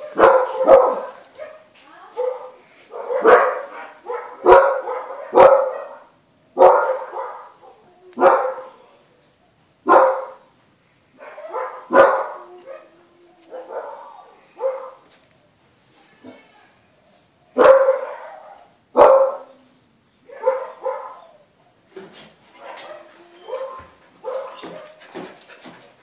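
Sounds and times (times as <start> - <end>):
dog barking: 0.0 - 8.8, 9.8 - 10.4, 11.2 - 12.9, 13.5 - 15.0, 17.6 - 19.6, 20.3 - 21.4, 22.6 - 24.8.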